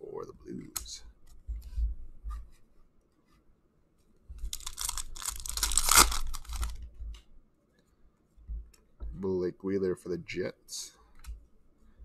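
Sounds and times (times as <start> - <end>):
foil pack tearing and crinkling: 4.5 - 6.8.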